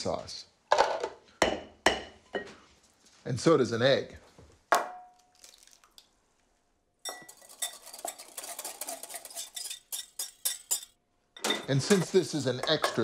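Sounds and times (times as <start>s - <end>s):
utensil scraping glass bowl: 7.1s - 10.9s.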